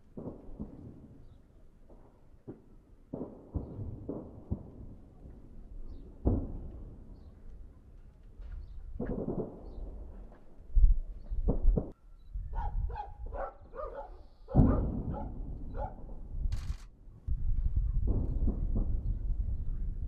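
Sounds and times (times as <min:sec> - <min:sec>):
distant explosions: 0:00.0 - 0:07.5, 0:08.4 - 0:10.4, 0:14.5 - 0:20.0.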